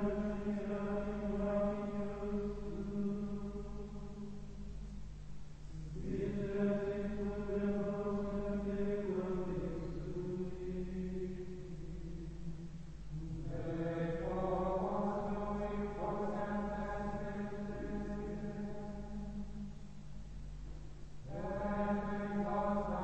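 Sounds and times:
men singing plainchant: 0:05.7 - 0:12.3, 0:13.1 - 0:19.0, 0:21.2 - 0:23.0.

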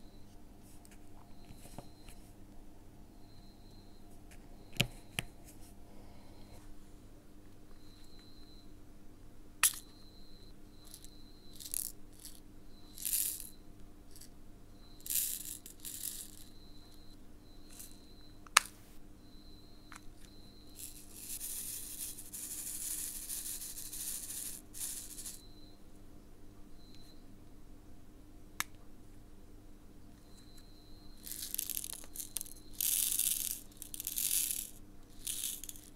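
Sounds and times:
resin beads rattling in plastic pot: 0:10.9 - 0:14.3, 0:15.0 - 0:16.5, 0:20.7 - 0:25.4, 0:31.2 - 0:35.9
beads pouring into plastic tray: 0:11.6 - 0:12.4, 0:13.0 - 0:13.5, 0:15.0 - 0:16.4, 0:20.8 - 0:25.4, 0:31.2 - 0:35.9.

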